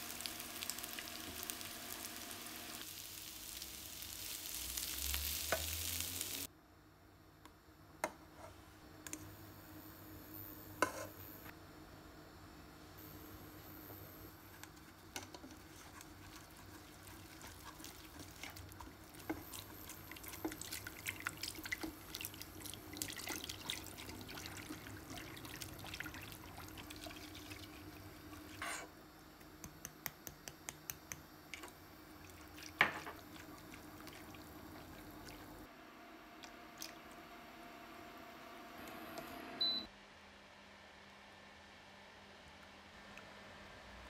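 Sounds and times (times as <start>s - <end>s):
whisk scraping a saucepan: 14.7s - 26.6s.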